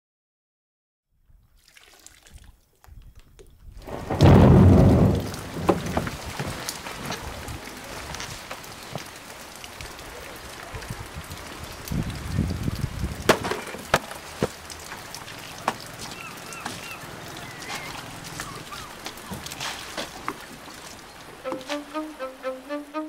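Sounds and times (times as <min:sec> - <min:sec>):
sharp wooden knocks and clicks: 0:05.2 - 0:06.6, 0:13.3 - 0:14.6.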